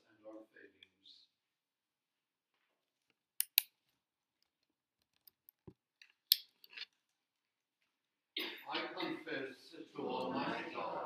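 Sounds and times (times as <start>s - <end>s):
sharp clicks: 3.4s - 3.7s.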